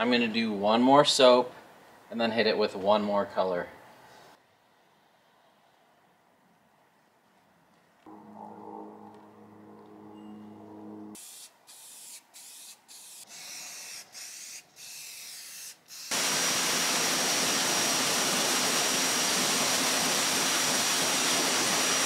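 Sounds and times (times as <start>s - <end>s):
thin high whine: 8.1s - 11.2s
aerosol spray can hissing: 11.2s - 22.0s
pressure washer water jet: 13.1s - 22.0s.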